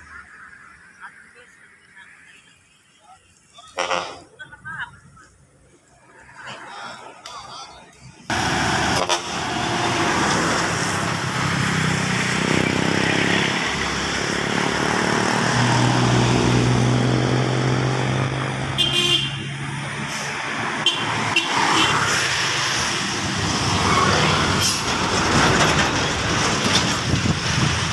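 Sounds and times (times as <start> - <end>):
cars driving past: 5.9 - 27.9
truck driving past: 8.3 - 27.9
car horn toot: 18.8 - 19.5, 20.8 - 22.1.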